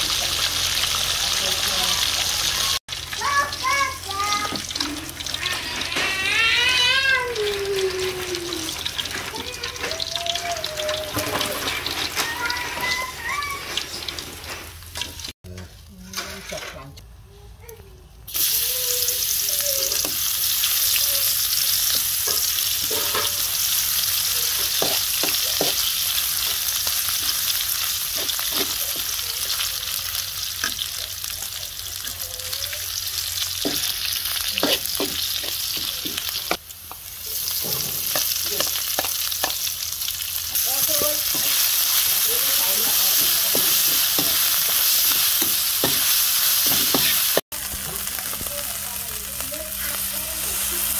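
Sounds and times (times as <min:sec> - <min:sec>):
garlic frying in hot oil: 0:00.0 - 0:15.3, 0:18.3 - 0:50.9
metal spatula scraping a wok: 0:21.9 - 0:23.7.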